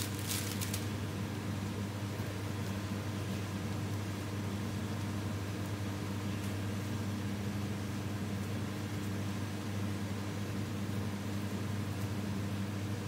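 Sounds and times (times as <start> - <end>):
constant hiss: 0.0 - 1.7
low mechanical hum: 0.0 - 13.0.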